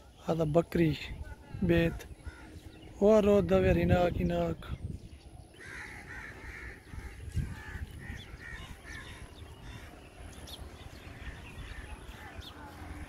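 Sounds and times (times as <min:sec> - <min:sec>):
crows cawing: 0:02.0 - 0:02.9, 0:05.5 - 0:10.1.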